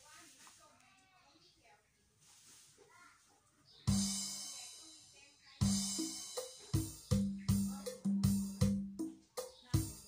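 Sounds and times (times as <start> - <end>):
drum hits: 3.9 - 4.6, 5.6 - 10.0.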